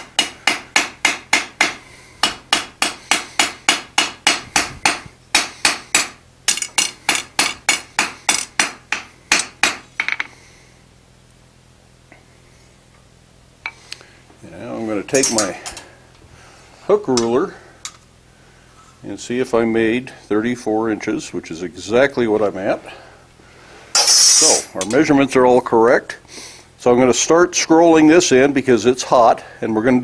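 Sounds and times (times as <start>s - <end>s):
hammer striking iron on anvil: 0.0s - 10.3s, 15.2s - 15.5s, 24.0s - 25.0s
low steady hum: 0.0s - 30.0s.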